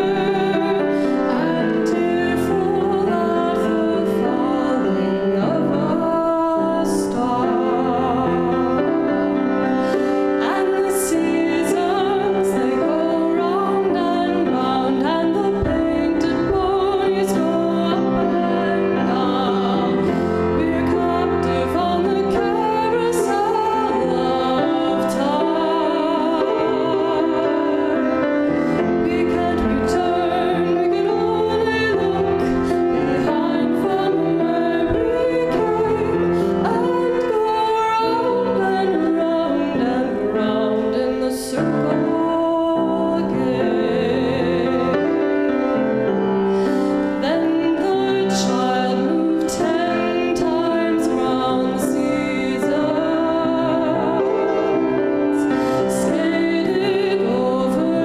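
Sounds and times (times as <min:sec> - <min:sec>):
woman singing with vibrato: 0:00.0 - 0:45.9, 0:46.6 - 0:58.0
piano accompaniment: 0:00.0 - 0:58.0.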